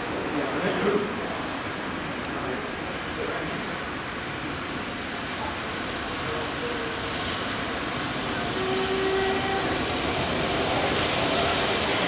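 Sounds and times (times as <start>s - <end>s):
steam locomotive rumbling: 0.0s - 12.0s.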